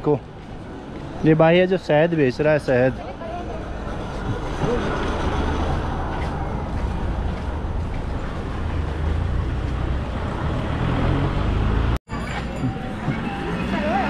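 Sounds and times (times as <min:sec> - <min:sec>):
busy street ambience: 0:00.0 - 0:14.0.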